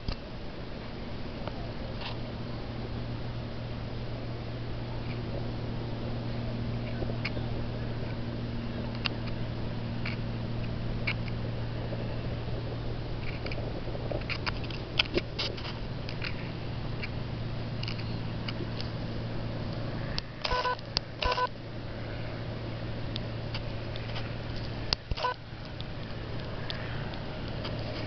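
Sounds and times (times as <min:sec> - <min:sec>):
steady low hum: 0:00.0 - 0:28.0
small clicks: 0:19.7 - 0:21.5
short flat beeps: 0:20.4 - 0:21.5, 0:25.2 - 0:25.4.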